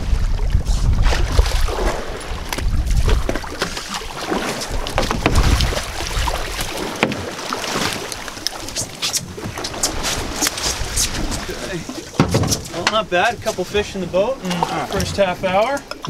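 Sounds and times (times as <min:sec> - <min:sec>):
water splashing against boat hull: 0:00.0 - 0:16.0
fish thrashing in water: 0:00.2 - 0:12.8.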